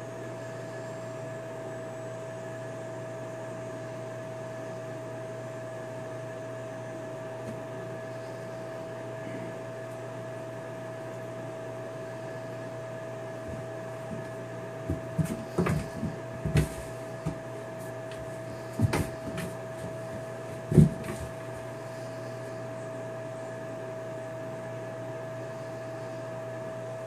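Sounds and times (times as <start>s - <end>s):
steady hum: 0.0s - 27.0s
kitten thumping against bathtub: 14.9s - 17.4s, 18.8s - 20.0s.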